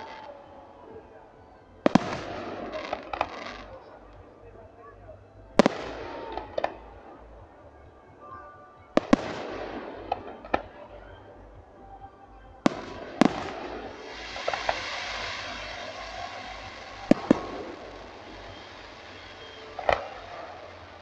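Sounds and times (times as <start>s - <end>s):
firework hiss: 13.2s - 21.0s.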